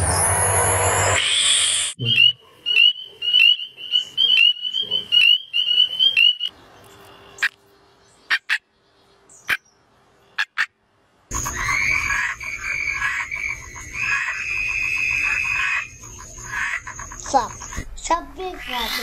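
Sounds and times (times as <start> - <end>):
frogs chirping: 2.0 - 6.5, 11.3 - 17.8, 18.4 - 19.0.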